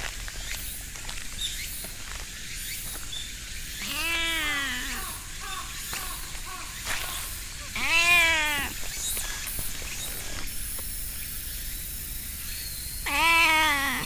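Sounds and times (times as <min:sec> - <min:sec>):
cat meowing: 0:03.8 - 0:05.2, 0:07.1 - 0:08.8, 0:13.1 - 0:14.0.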